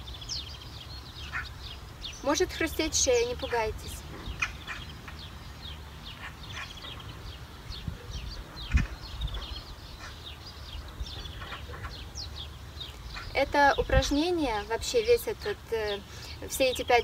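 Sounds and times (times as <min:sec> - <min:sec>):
small birds chirping: 0:00.0 - 0:17.0
wind rumble on microphone: 0:01.6 - 0:15.2.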